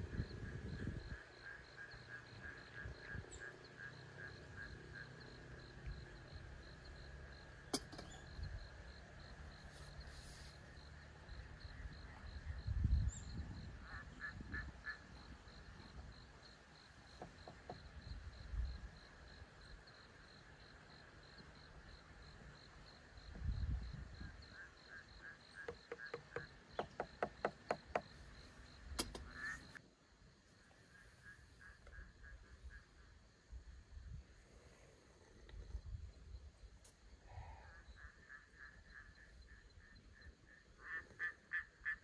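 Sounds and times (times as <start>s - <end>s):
frog croaking: 0.0s - 9.4s, 10.8s - 22.0s, 22.6s - 29.8s, 37.4s - 42.0s
night insects chirping: 0.0s - 42.0s.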